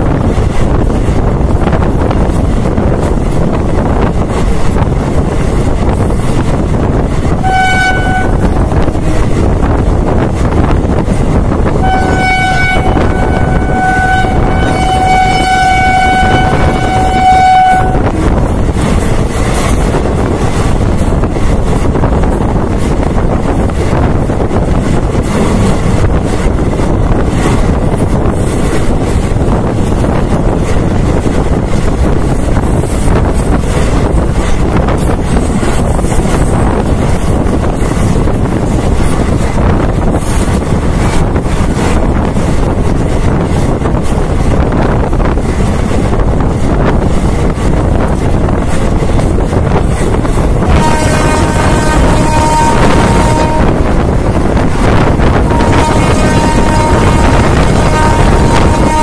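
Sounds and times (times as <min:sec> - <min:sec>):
train wind and running noise: 0:00.0 - 0:59.0
train horn blasts: 0:07.3 - 0:08.8, 0:11.7 - 0:18.3, 0:50.6 - 0:54.2, 0:55.2 - 0:59.0.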